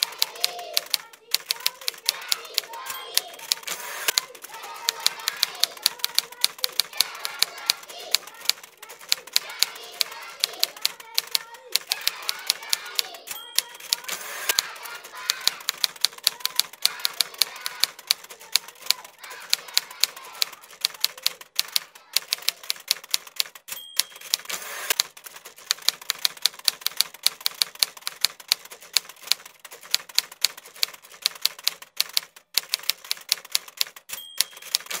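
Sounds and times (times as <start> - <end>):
typewriter bell ring: 0.0 - 35.0
typewriter keys clacking: 0.0 - 35.0.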